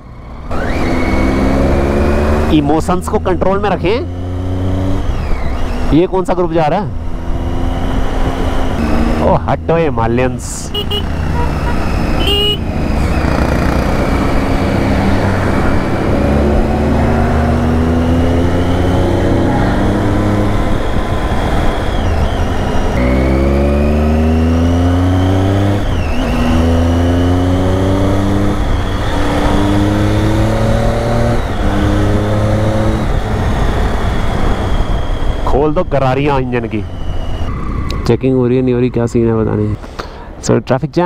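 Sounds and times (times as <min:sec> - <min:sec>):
motorcycle engine revving: 0:00.0 - 0:38.7
wind rushing: 0:28.1 - 0:38.7.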